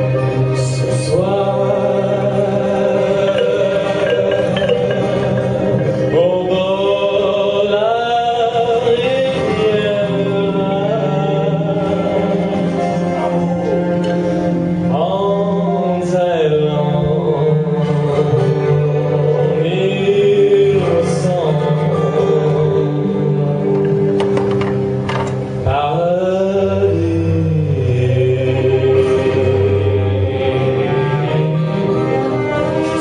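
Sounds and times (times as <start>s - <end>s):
cello low held notes: 0.0s - 7.8s
violin slow melody: 0.0s - 24.2s, 28.7s - 33.0s.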